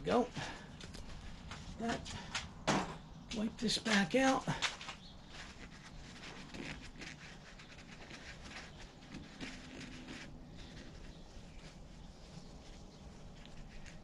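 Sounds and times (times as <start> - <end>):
paper towel scrubbing inside reservoir: 5.2 - 14.0.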